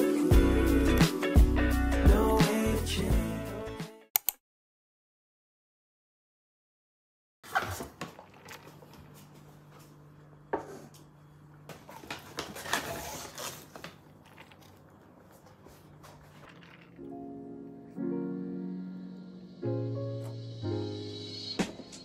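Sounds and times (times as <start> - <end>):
paper bag rustling: 7.4 - 9.2, 11.9 - 17.2.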